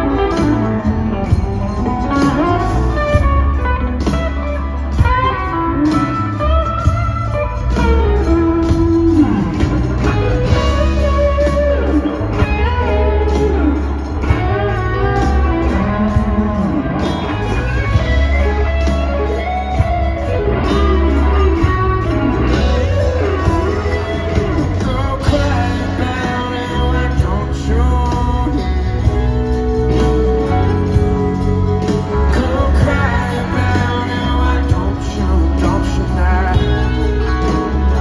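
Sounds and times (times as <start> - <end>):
electric guitar solo with bent notes: 0.0 - 27.2
drums: 0.0 - 38.0
sustained bass notes: 0.0 - 38.0.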